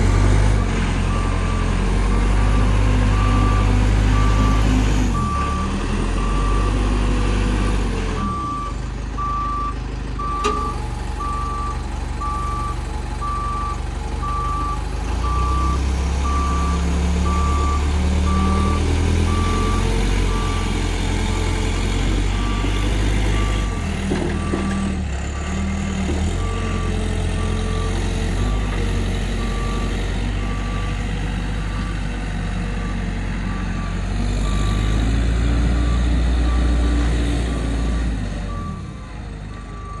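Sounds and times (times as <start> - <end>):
diesel engine running: 0.0 - 40.0
reverse alarm beeps: 2.4 - 6.8, 8.2 - 20.8, 29.4 - 31.0, 38.5 - 40.0.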